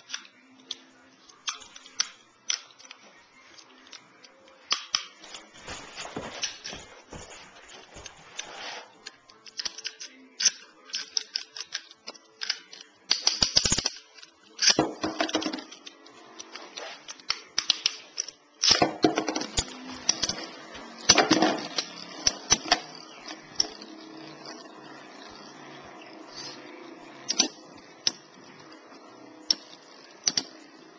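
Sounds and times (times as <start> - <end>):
spinning tops whirring: 19.5 - 30.9.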